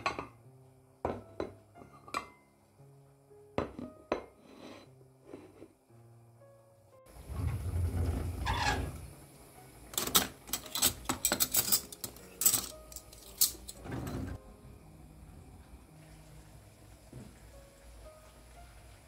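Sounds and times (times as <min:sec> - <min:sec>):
drawer sliding open: 0:07.2 - 0:09.1, 0:13.4 - 0:14.4
cutlery clinking: 0:09.9 - 0:13.9.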